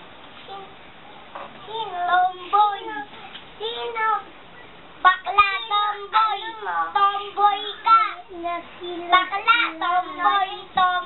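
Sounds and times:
child singing: 1.6 - 4.3, 5.0 - 11.0.

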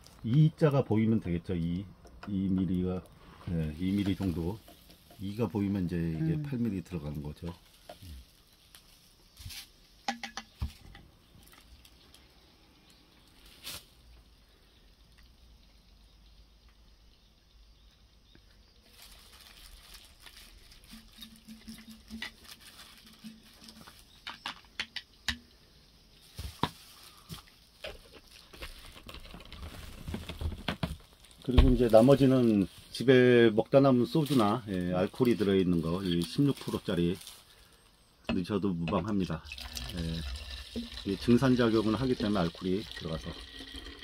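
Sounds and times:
glass and plastic bottles clicking: 3.9 - 6.4, 10.0 - 11.6, 20.7 - 25.5.

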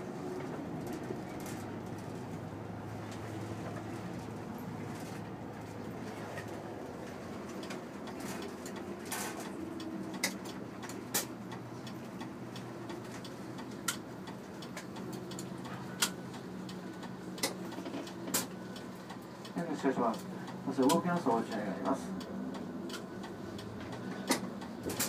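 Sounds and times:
bus engine drone: 0.0 - 25.0.

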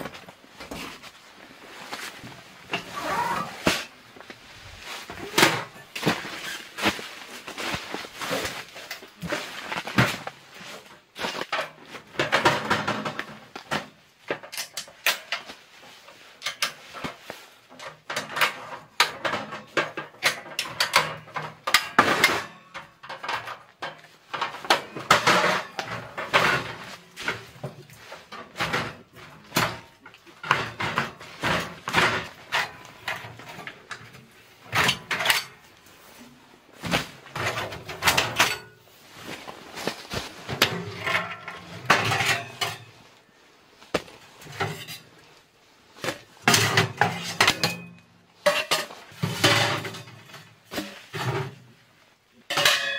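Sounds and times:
metal clanks and knocks: 11.2 - 15.5, 16.4 - 35.7, 36.8 - 38.8, 40.4 - 43.1, 44.0 - 45.1, 46.0 - 51.7, 52.5 - 52.9
bag rustling: 39.0 - 40.6.

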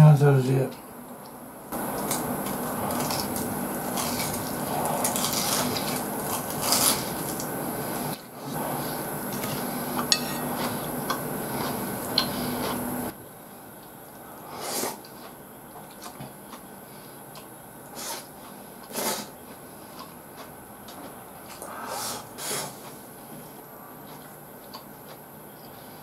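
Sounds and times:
steady background hiss: 0.0 - 26.0
person chewing: 1.7 - 12.9, 14.8 - 23.1, 23.9 - 25.8
chopsticks clicking on plate: 10.0 - 10.7.

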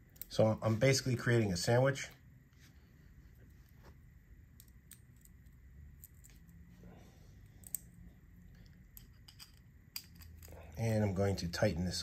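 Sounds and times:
small metallic clicks: 7.5 - 10.5.

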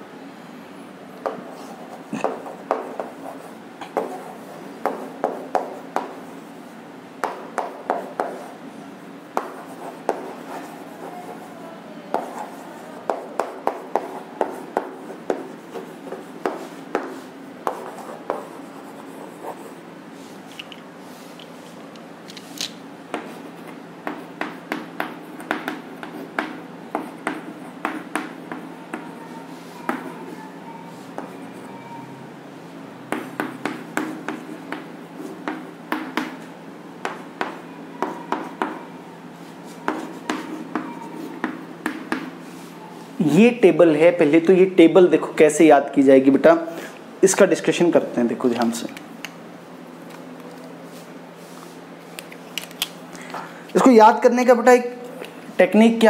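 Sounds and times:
chalk tapping and scraping: 1.2 - 6.3, 7.2 - 8.6, 9.3 - 11.5, 12.1 - 31.7, 33.1 - 38.8, 39.4 - 42.8.

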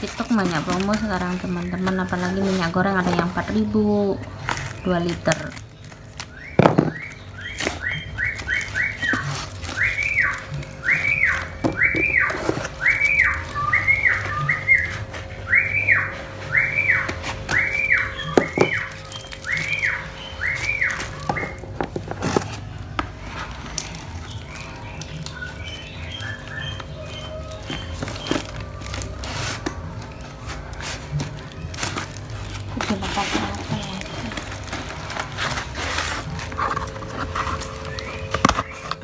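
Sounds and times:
cardboard clicks and rustles: 0.0 - 39.0
whistled call: 6.3 - 21.6.

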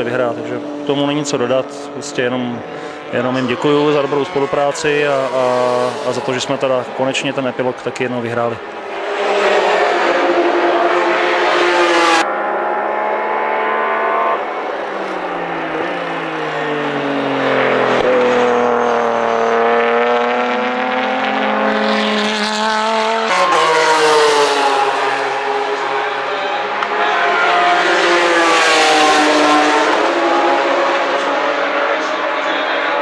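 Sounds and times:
race car engines revving: 0.0 - 33.0.

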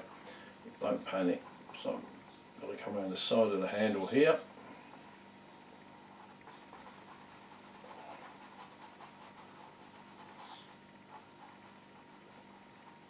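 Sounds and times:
low steady hum: 0.0 - 13.0
paintbrush scrubbing on canvas: 6.1 - 13.0.

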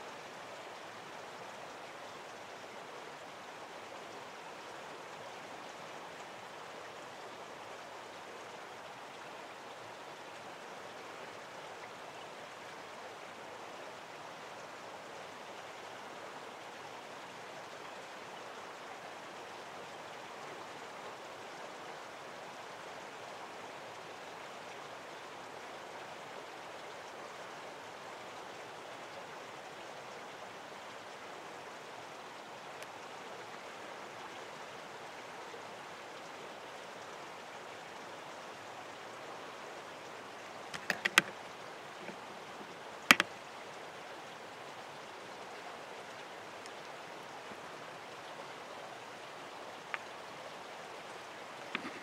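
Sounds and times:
running water: 0.0 - 52.0
sharp clicks: 40.8 - 41.4, 43.1 - 43.4.

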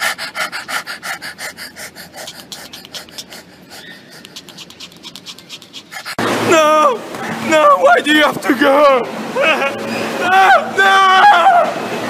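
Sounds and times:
rhythmic open-mouthed panting: 0.0 - 6.2.

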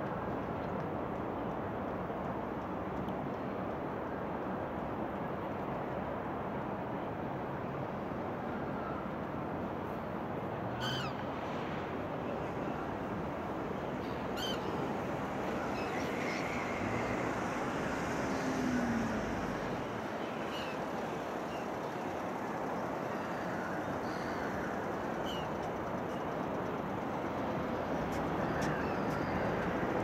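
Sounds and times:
city noise hum: 0.0 - 30.0
gulls crying: 13.8 - 21.7.

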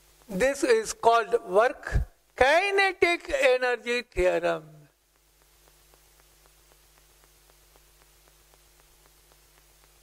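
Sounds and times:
faint electrical hum: 0.0 - 10.0
faint even ticks: 5.0 - 10.0.

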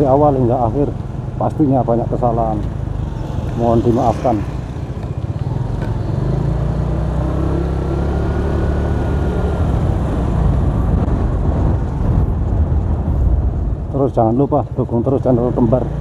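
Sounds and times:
scooter engine and road noise: 0.0 - 16.0
wind buffeting microphone: 9.2 - 16.0.

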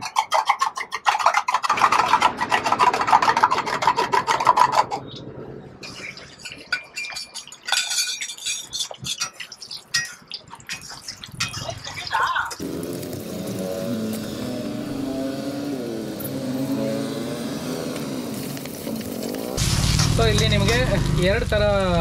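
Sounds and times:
metal spatula scraping a pan: 5.9 - 11.7.

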